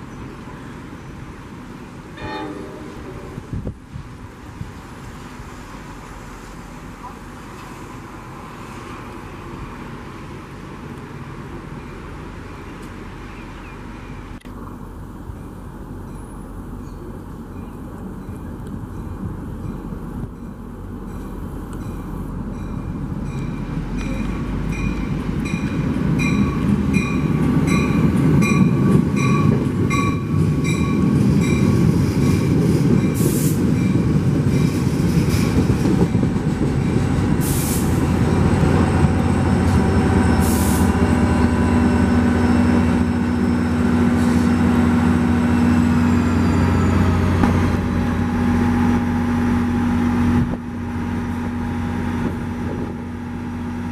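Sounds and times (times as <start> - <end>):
diesel locomotive humming: 0.0 - 53.9
train rumbling on rails: 0.0 - 53.9
crossing bell ringing: 16.0 - 31.9
brakes squealing: 37.3 - 49.3
air hisses: 37.4 - 38.0, 40.4 - 41.0.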